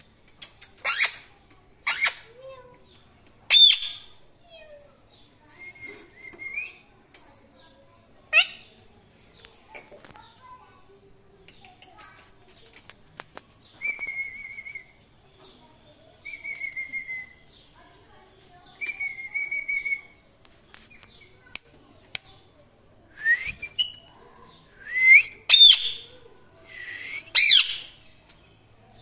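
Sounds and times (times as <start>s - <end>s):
parakeets calling: 1.8s - 2.3s, 25.5s - 26.1s, 27.3s - 28.0s.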